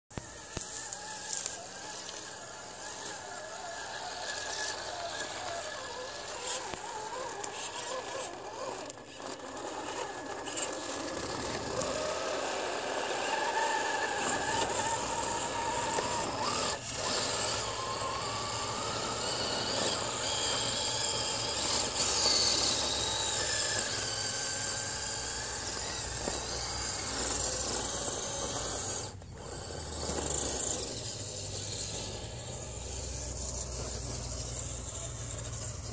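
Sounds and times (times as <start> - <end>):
toy car electric motor whining: 0.1 - 35.9.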